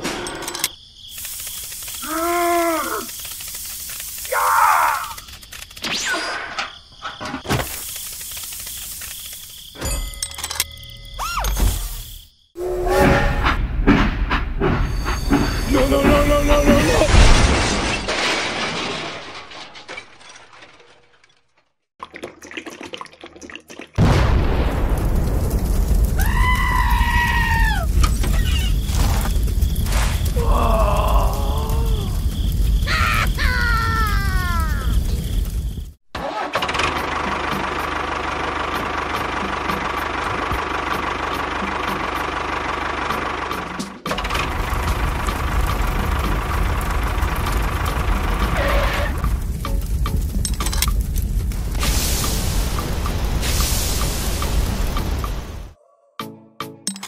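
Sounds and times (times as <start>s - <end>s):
faint crackles and ticks: 1.1s - 5.8s, 7.6s - 9.6s, 24.9s - 35.8s, 44.6s - 55.2s
toy train crash: 15.0s - 21.8s
loud rushing fire: 24.0s - 36.0s, 44.2s - 55.8s
tractor engine chugging: 36.4s - 51.1s.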